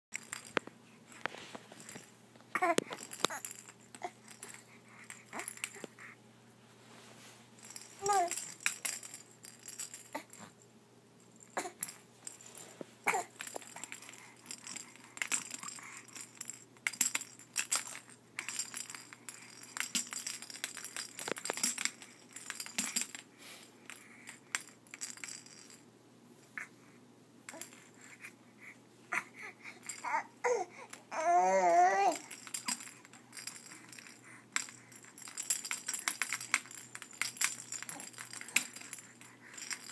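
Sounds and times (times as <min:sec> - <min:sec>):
plastic toy clicking and rattling: 0:02.6 - 0:04.6
infant babbling and squealing: 0:30.0 - 0:32.3.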